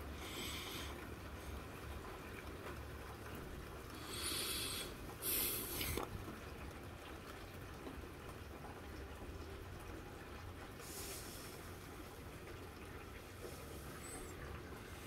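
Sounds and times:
rain heard through window: 0.0 - 15.0
short hissing bursts: 4.0 - 6.0.

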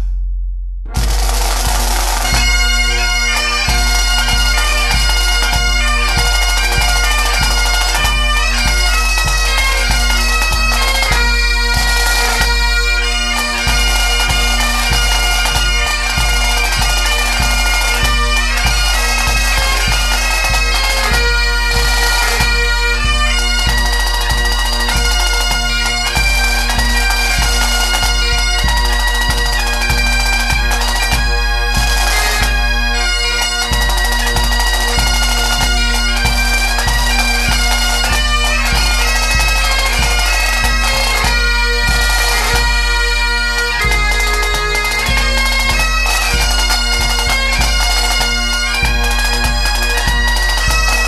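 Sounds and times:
drums keeping a beat: 0.0 - 51.0
bagpipes playing a tune: 1.1 - 51.0.

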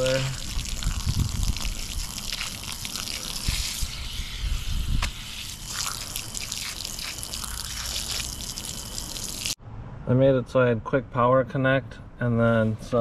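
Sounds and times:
hose water spraying on filter pad: 0.0 - 9.6.

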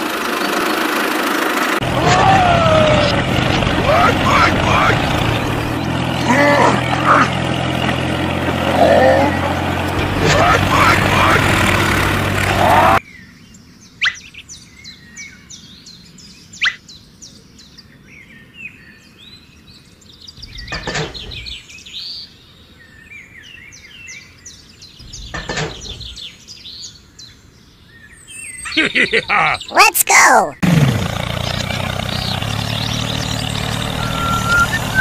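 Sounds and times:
metal wheels scraping: 1.8 - 13.0
birds chirping: 1.8 - 35.0.

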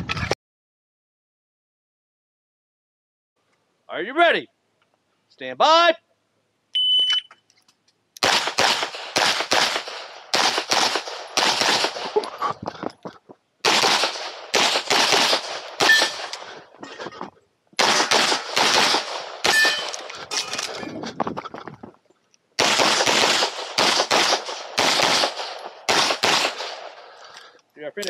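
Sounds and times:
pistol shots: 8.2 - 12.3, 13.6 - 16.6, 17.8 - 20.2, 22.6 - 27.1.

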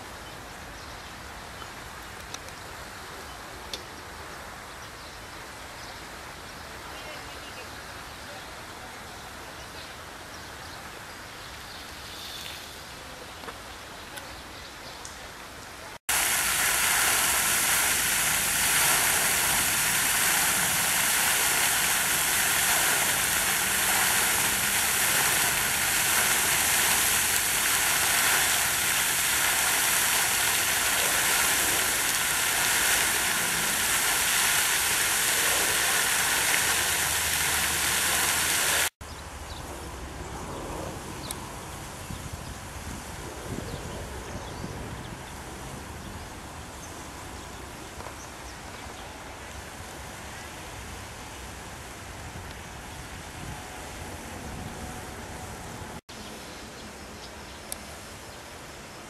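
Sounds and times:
fountain water splashing: 14.4 - 39.0
low outdoor hush: 15.2 - 38.9.

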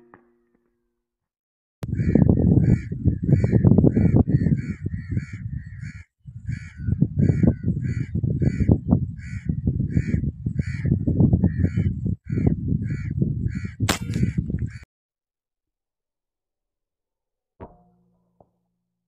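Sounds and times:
bird harsh calls: 1.9 - 14.8
air rifle shot: 13.9 - 14.4.

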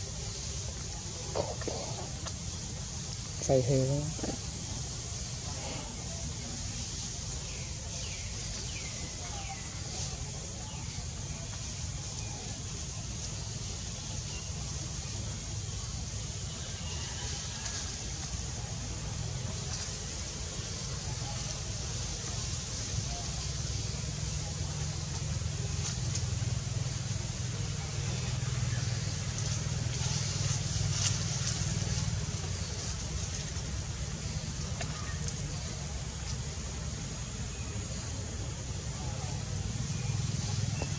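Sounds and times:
high hiss: 0.0 - 40.9.

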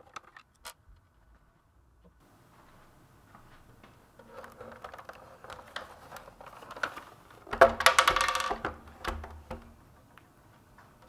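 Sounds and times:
plastic housing clicks and knocks: 0.0 - 0.8, 7.5 - 9.7.

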